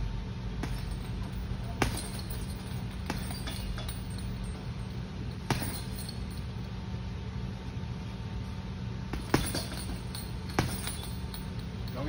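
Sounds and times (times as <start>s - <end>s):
steady low hum: 0.0s - 12.0s
gloves punching heavy bag: 0.6s - 6.3s, 9.1s - 11.6s.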